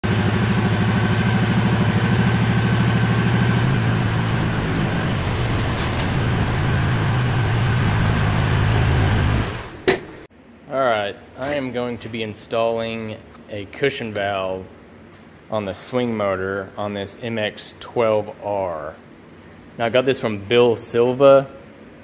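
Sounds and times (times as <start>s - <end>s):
excavator engine running: 0.0s - 10.2s.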